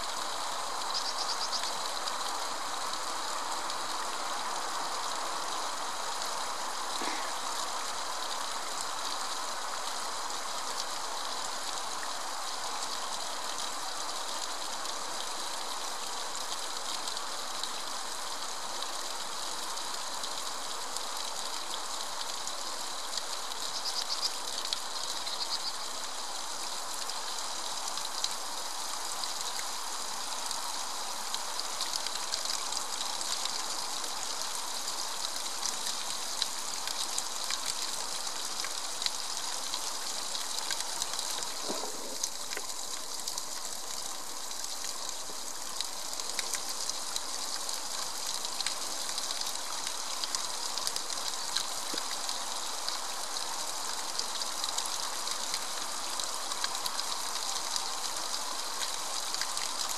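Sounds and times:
water drips: 0.2 - 17.9, 18.7 - 59.9
water splashing down rock: 41.2 - 43.0.

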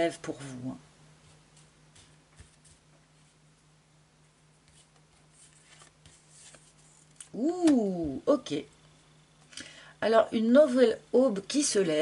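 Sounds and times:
faint low hum: 0.0 - 12.0
fingertips rustling on cards: 1.2 - 3.4, 4.6 - 7.4.

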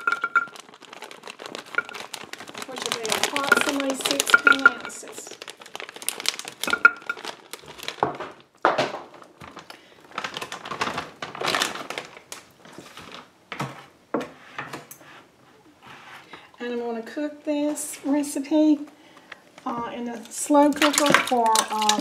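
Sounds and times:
plastic bag crinkling: 0.0 - 13.4, 19.0 - 22.0.

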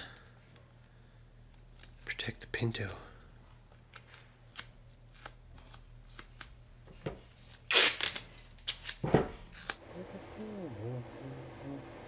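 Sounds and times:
masking tape crinkling: 7.2 - 9.8
tape crackling pressed down: 7.5 - 9.8
tape ripping: 7.5 - 9.8.

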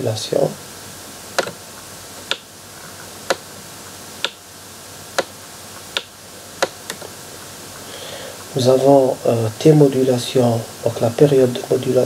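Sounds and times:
sharp dry clicks: 1.4 - 1.6, 2.2 - 2.5, 4.2 - 4.4, 5.2 - 7.1.

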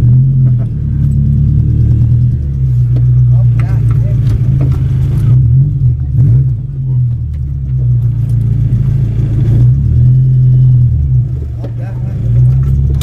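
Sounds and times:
car engine drone from inside: 0.0 - 13.0.

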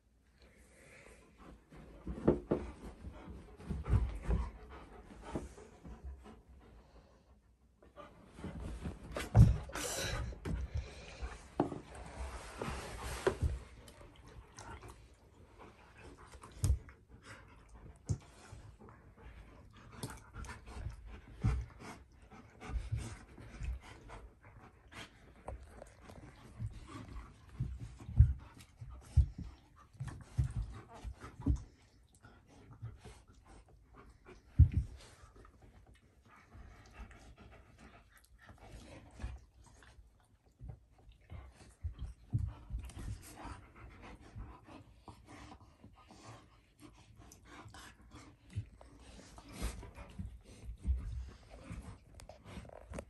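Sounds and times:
puppies scuffling on carpet: 1.0 - 7.2, 7.8 - 53.0
dogs panting: 1.3 - 53.0
low thumps on rug: 1.4 - 6.4, 8.3 - 14.1, 26.3 - 31.9, 34.4 - 35.4, 40.6 - 44.8.

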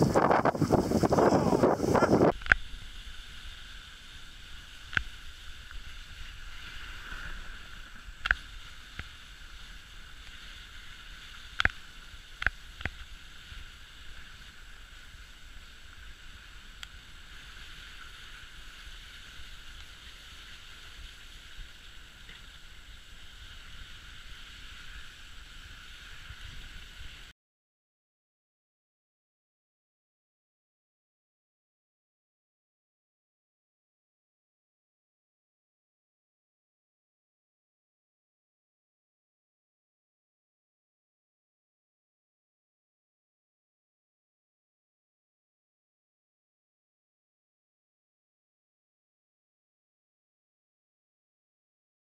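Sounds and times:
sled runners hissing over snow: 0.0 - 27.3.

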